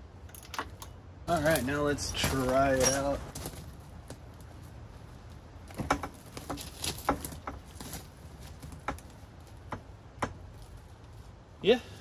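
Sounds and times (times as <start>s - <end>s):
light metallic knocks and clicks: 5.7s - 7.7s.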